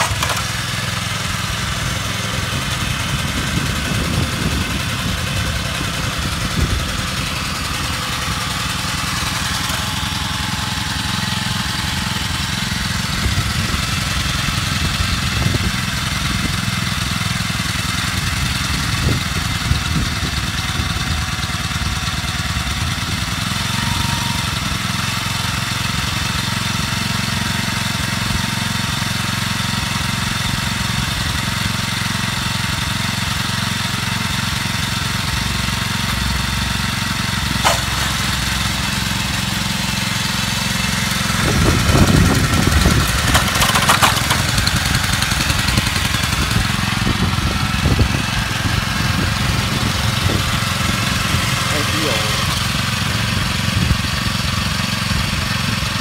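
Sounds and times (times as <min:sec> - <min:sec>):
small tiller engine running: 0:00.0 - 0:56.0
sharp click: 0:37.6 - 0:38.5.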